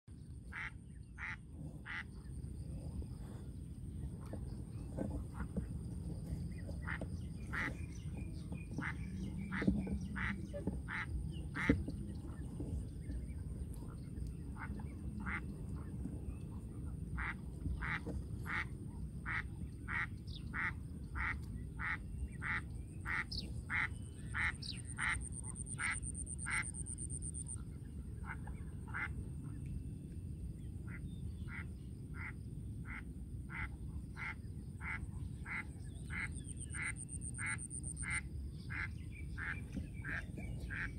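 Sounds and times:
low steady rumble: 0.1 - 40.9
duck quacking: 0.5 - 2.0, 19.3 - 26.7.

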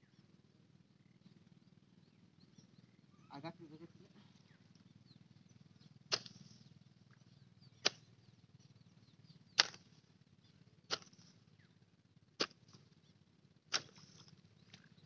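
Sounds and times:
faint bird chirps: 0.0 - 15.0
hoe striking muddy ground: 6.1 - 6.5, 7.8 - 8.0, 9.6 - 9.9, 10.9 - 11.3, 12.4 - 12.9, 13.7 - 14.9.

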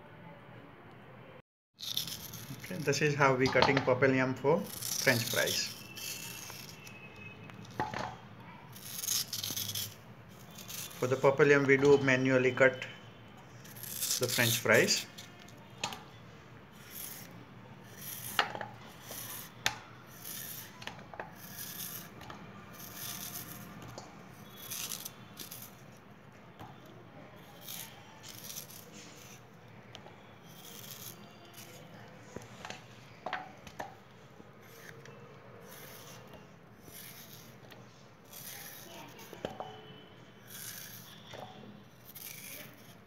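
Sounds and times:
knife cutting through yam: 4.6 - 7.3, 8.7 - 11.2, 13.6 - 15.3, 16.7 - 25.8, 27.4 - 29.4, 30.4 - 32.0, 34.6 - 37.6, 38.2 - 39.8, 40.4 - 43.0.

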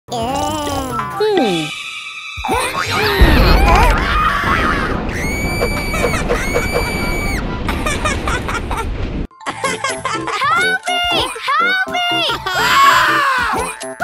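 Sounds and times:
explosive blast: 3.0 - 9.3
low rumble of collapse: 3.0 - 9.3
cartoon voice screaming: 11.6 - 13.8.

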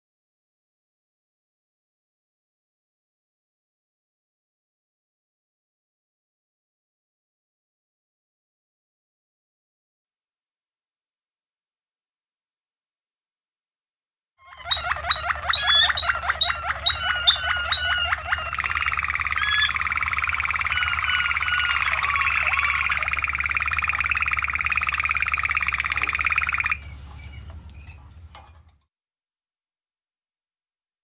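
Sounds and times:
canary singing trills: 14.4 - 28.0.

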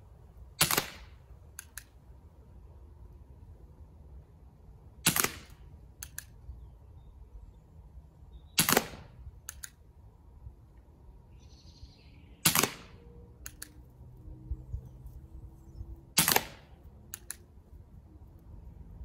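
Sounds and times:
airsoft revolver shots: 0.6 - 1.8, 5.0 - 6.2, 8.6 - 9.7, 12.4 - 13.7, 16.2 - 17.3
light clicks: 1.5 - 2.0, 6.0 - 6.4, 9.4 - 9.8, 13.4 - 13.8, 17.1 - 17.5.

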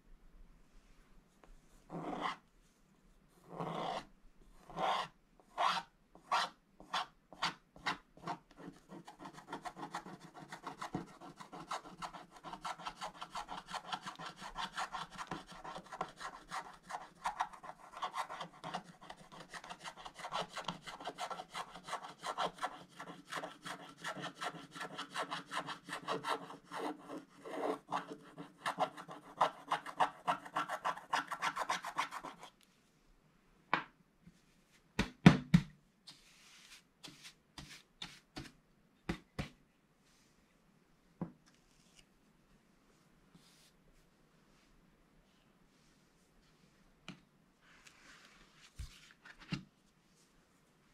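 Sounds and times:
stylus scratching paper: 3.4 - 32.5
brush sweeping across paper: 36.1 - 38.5, 40.0 - 40.5, 42.8 - 47.0, 47.6 - 49.2.

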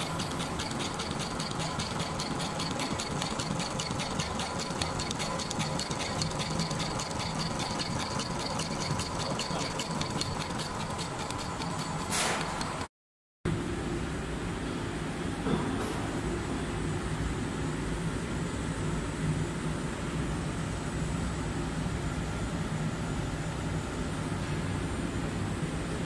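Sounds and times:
sewing machine running: 0.0 - 12.9.

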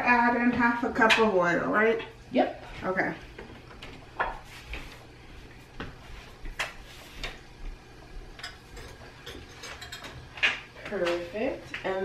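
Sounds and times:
kitchen items clicking and tapping: 8.3 - 11.9.

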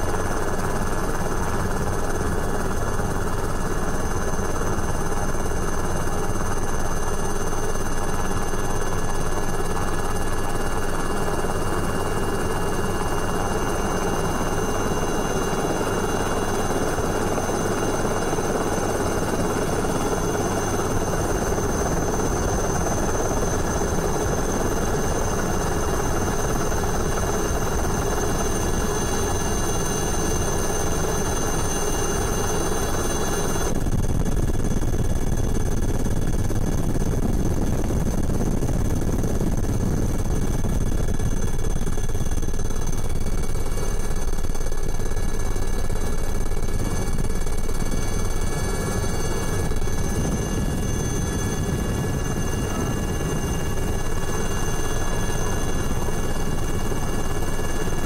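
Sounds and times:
helicopter rotor and engine: 0.0 - 58.0
high-pitched whine: 5.1 - 58.0.

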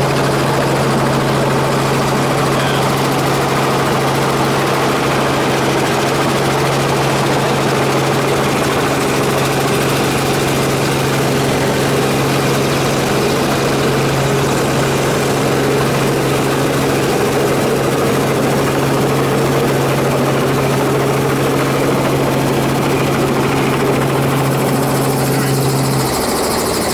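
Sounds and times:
helicopter motor hum: 0.0 - 26.9
rotor whirr: 22.6 - 26.9.

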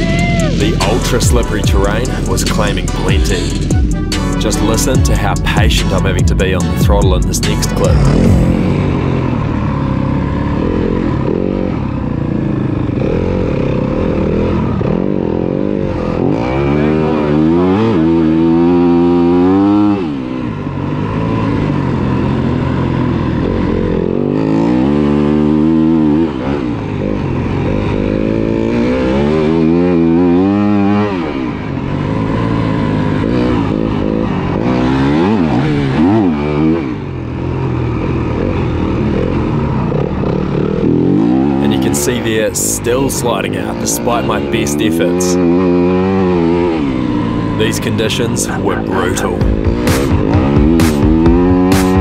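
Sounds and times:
dirt bike engine revving: 0.0 - 52.0.

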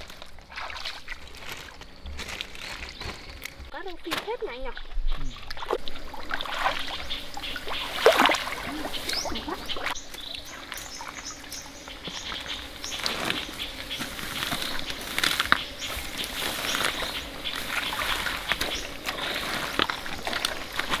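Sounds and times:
splashing in shallow water: 0.0 - 2.7, 4.1 - 11.1.

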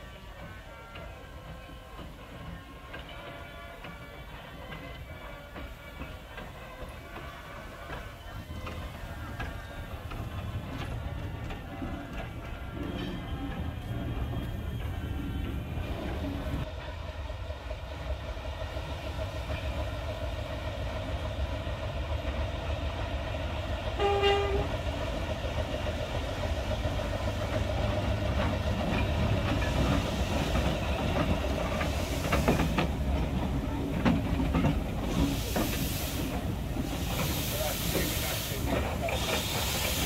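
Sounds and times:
steam train rumbling on rails: 0.0 - 40.0
steam hiss: 18.7 - 40.0
steam whistle toot: 24.0 - 24.7.

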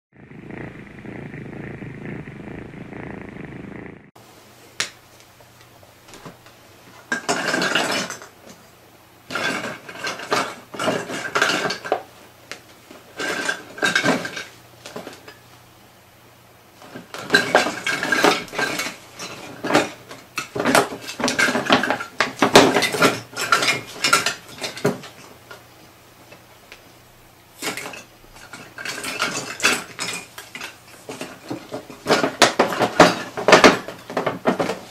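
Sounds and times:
muffled steady sound: 0.1 - 4.2.

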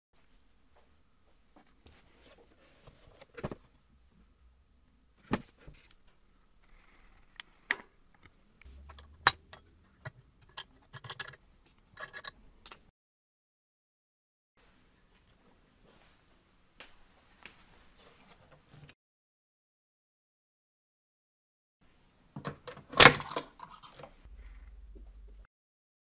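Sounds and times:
small hard parts clicking: 6.6 - 12.9.

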